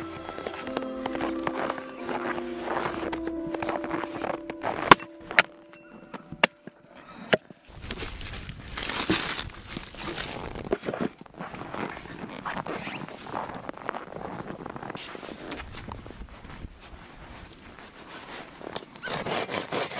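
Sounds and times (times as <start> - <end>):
music: 0.0 - 7.3
crunching noise: 7.7 - 16.4.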